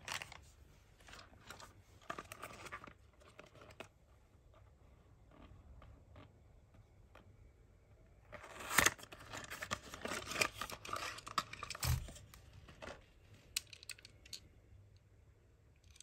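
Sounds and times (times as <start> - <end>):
light clicks of toy handling: 8.7 - 15.1.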